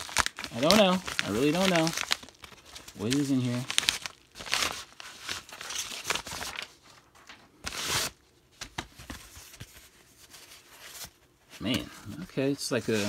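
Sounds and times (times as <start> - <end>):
packaging tearing: 0.0 - 6.7
paper rustling and crinkling: 0.0 - 13.0.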